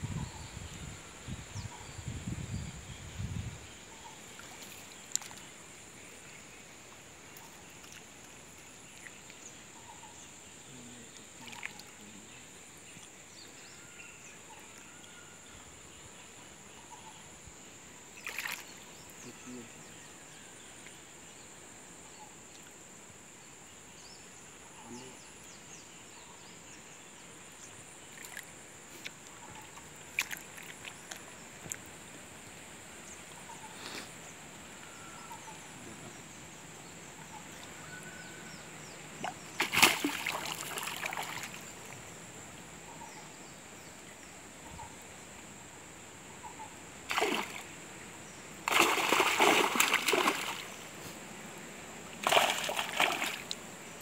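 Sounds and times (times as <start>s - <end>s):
small water drips: 4.4s - 5.5s, 28.2s - 31.9s, 52.2s - 53.6s
water splashing around net: 18.2s - 18.6s, 39.2s - 41.6s, 47.1s - 47.7s, 48.6s - 50.8s, 52.2s - 53.6s.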